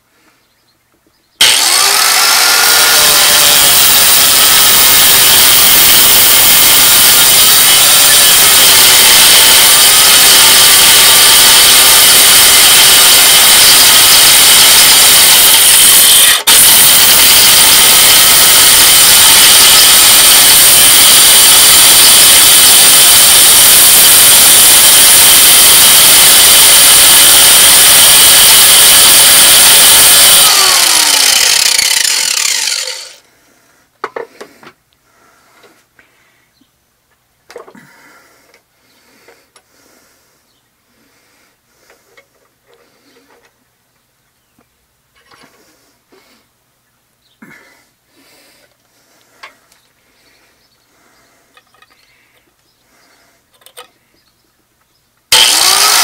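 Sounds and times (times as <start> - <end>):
angle grinder grinding steel: 1.4 - 33.2, 55.3 - 56.0.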